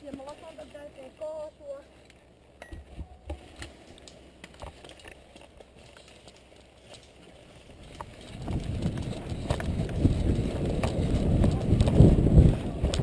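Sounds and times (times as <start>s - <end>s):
footsteps on dry leaves: 4.7s - 12.8s
microphone movement rumble: 7.7s - 13.0s.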